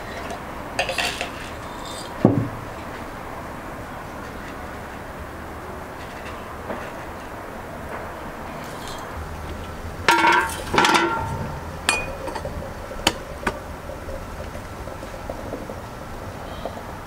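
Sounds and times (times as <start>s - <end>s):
porcelain and metal clinking: 10.1s - 12.5s.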